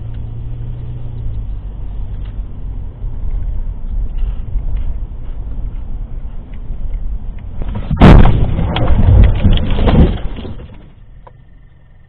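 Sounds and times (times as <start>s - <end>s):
road rumble: 0.0s - 12.0s
crunching and scraping metal: 7.4s - 11.4s
car crash impact: 7.6s - 11.0s.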